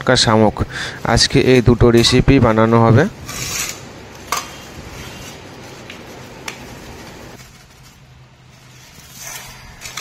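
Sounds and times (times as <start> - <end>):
plastic bag rustling: 2.6 - 10.0.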